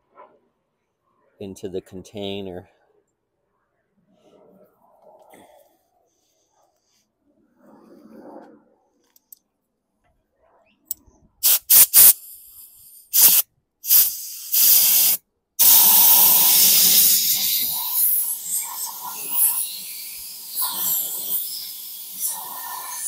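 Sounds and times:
compressed air blow gun hissing: 11.4 - 23.0.

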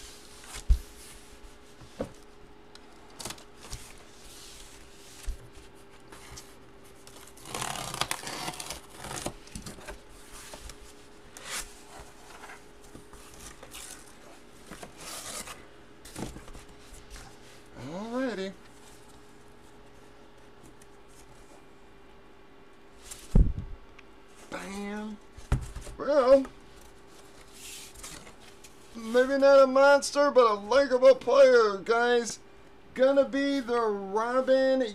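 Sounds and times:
cardboard packaging rustling and tearing: 6.9 - 10.8, 11.4 - 16.8.

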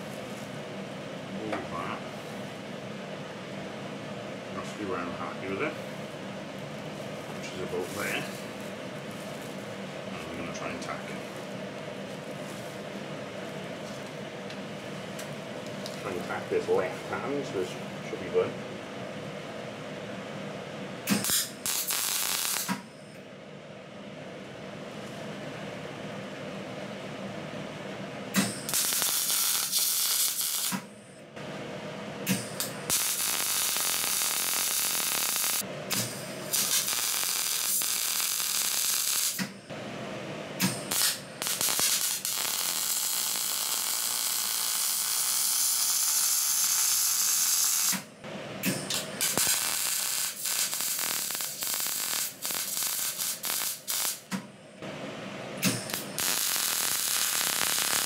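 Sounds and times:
welding arc crackling and hissing: 0.0 - 0.6, 7.1 - 9.6, 21.1 - 22.8, 28.7 - 30.8, 32.6 - 39.5, 40.7 - 48.0, 48.8 - 54.3, 55.6 - 58.0.

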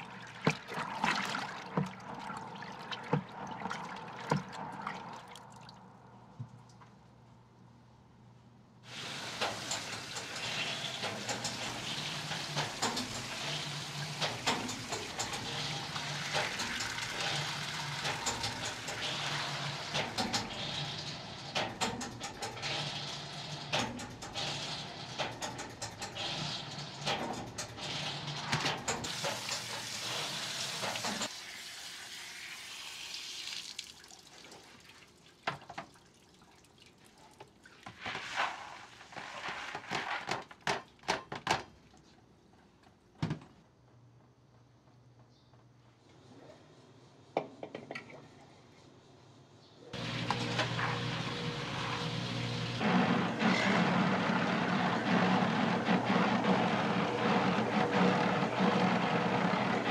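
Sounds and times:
water pouring and splashing: 0.0 - 6.0, 8.9 - 21.6, 27.9 - 40.4.

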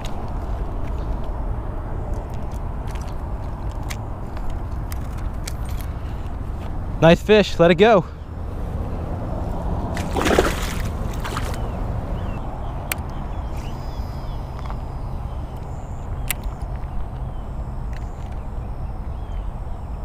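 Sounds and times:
fish splashing into water: 9.9 - 11.6
sharp clicks: 12.8 - 14.8, 15.5 - 18.5.

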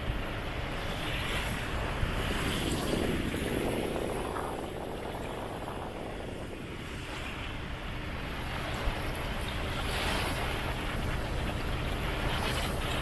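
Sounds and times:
water lapping against quay: 0.0 - 13.0
wind rumbling on microphone: 0.0 - 13.0.

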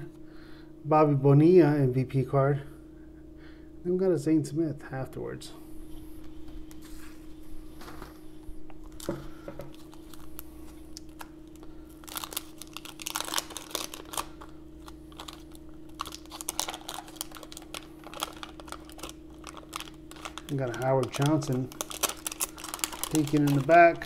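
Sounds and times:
steady low hum: 0.0 - 24.0
wax paper wrapper tearing: 9.7 - 24.0.

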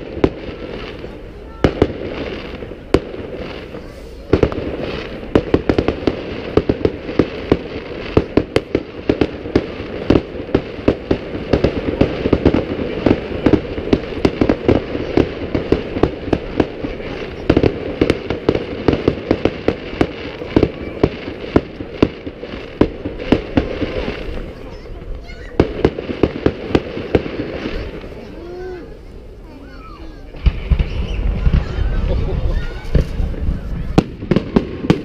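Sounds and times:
fireworks bangs and pops: 0.0 - 35.0
din of explosions: 30.1 - 35.0.

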